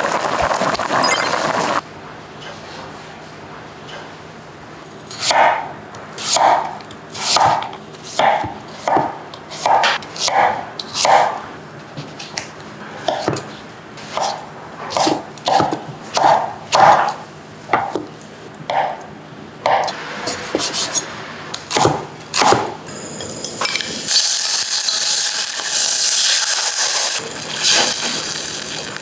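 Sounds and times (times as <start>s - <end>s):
pork frying in a saucepan: 0.0s - 1.8s, 23.0s - 29.0s
knife chopping on wooden board: 5.2s - 5.6s, 6.3s - 6.7s, 7.3s - 11.4s, 13.1s - 13.5s, 14.1s - 17.2s, 17.8s - 18.1s, 18.7s - 19.0s, 21.7s - 22.8s.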